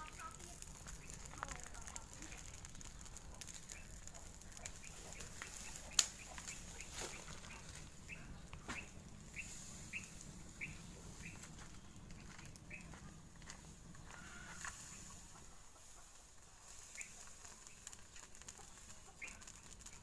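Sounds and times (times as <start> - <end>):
straw fire crackling: 0.0 - 20.0
high bird chirps: 4.8 - 12.9.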